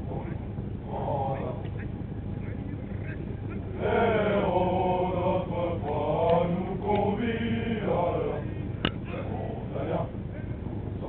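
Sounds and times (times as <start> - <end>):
men singing in unison: 0.8 - 1.6, 3.8 - 10.1.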